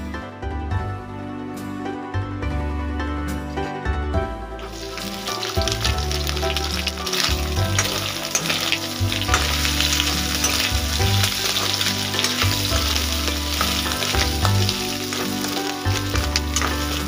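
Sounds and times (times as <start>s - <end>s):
food sizzling in hot oil: 4.6s - 17.0s
ladle clicking against pan: 5.0s - 17.0s.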